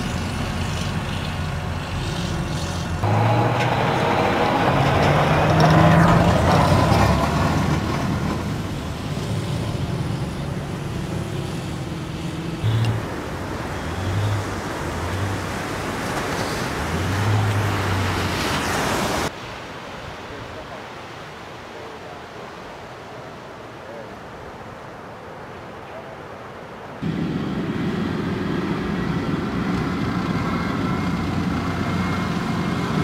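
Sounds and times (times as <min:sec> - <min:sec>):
diesel engine droning: 0:00.0 - 0:18.5, 0:27.0 - 0:33.0
water and surf rushing: 0:03.0 - 0:33.0.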